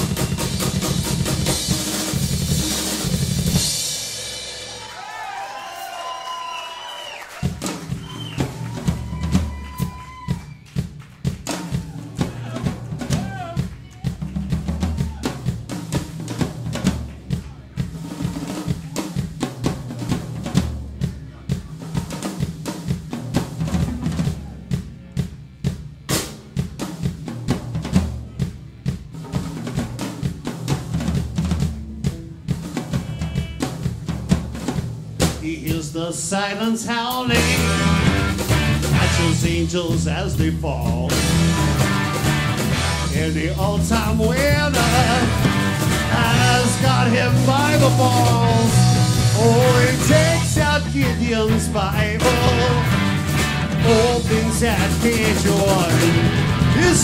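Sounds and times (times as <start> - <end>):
electric bass line: 0.0 - 4.5, 37.2 - 57.0
live rock band instrumental: 0.0 - 4.9, 7.4 - 35.9, 37.0 - 57.0
snare and bass drum strikes: 7.4 - 35.9, 37.3 - 57.0.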